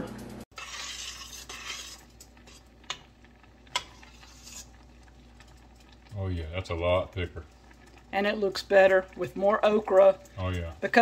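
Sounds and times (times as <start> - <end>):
spoon stirring thick stew: 0.5 - 6.1.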